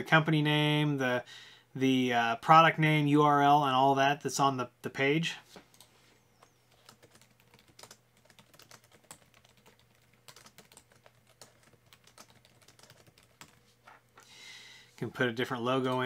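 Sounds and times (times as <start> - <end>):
keyboard typing: 5.7 - 13.6.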